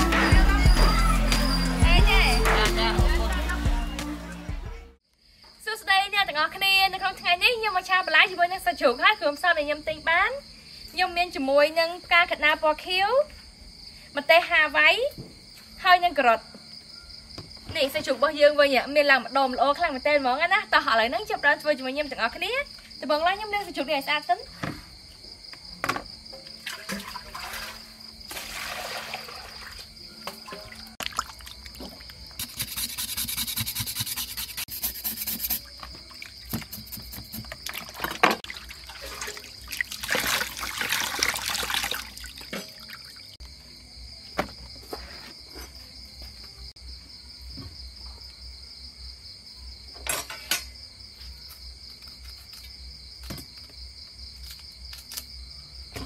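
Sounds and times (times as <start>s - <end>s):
crickets chirping: 0.0s - 3.5s, 5.0s - 56.0s
water splashing in plastic basin: 26.6s - 32.4s, 37.4s - 43.4s.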